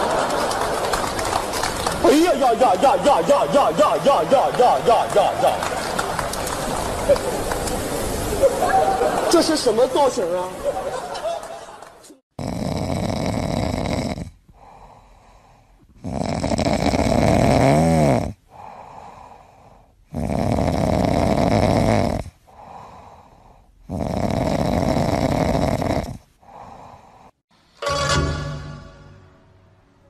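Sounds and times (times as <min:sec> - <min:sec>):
cat snoring: 0:12.4 - 0:19.0, 0:20.0 - 0:23.0, 0:23.8 - 0:27.1.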